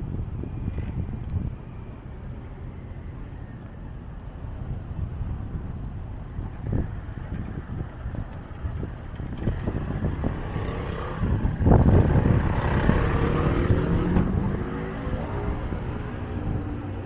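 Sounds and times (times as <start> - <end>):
vehicle passing: 9.3 - 17.0.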